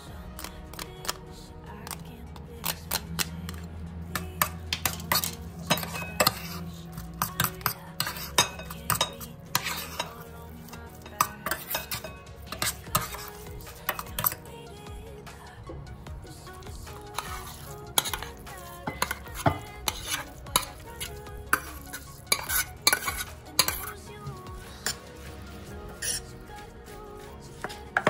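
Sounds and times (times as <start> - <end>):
metal spoon scraping in a pot: 1.8 - 14.5, 16.9 - 26.6
spoon clinking against pot: 4.2 - 14.4, 17.1 - 24.0.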